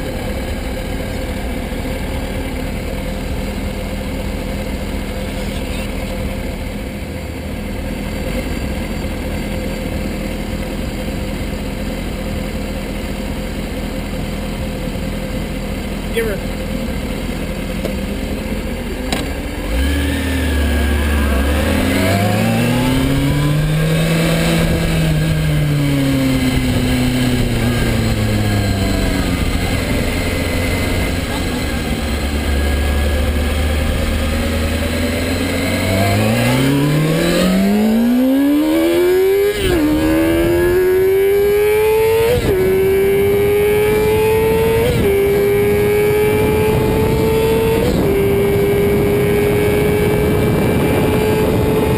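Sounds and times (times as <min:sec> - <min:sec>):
motorcycle engine revving: 0:00.0 - 0:51.9.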